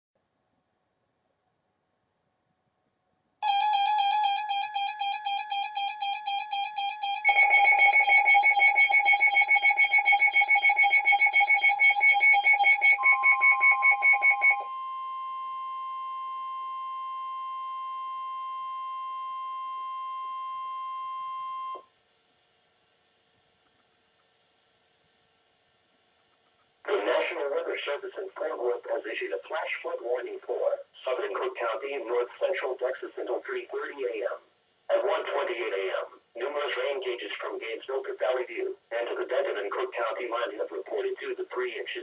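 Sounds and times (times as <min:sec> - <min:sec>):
weather radio alarm buzzing tone: 0:03.4 - 0:21.9
steady single-pitch warning tone: 0:03.4 - 0:22.0
rapid electronic beeping: 0:04.1 - 0:14.6.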